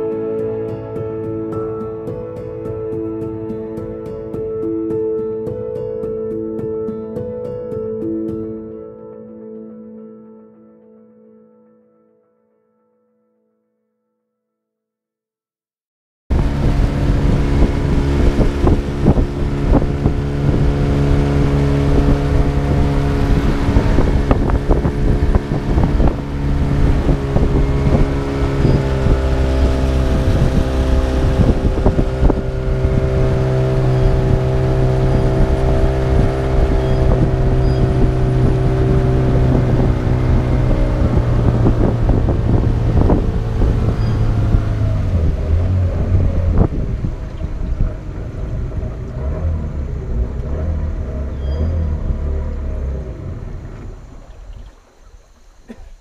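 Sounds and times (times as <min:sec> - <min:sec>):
boat engine running: 0:16.3 - 0:56.0.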